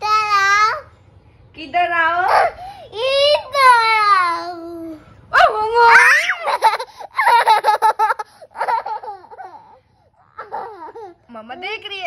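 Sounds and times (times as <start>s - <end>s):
toddler giggling: 6.2s - 11.2s.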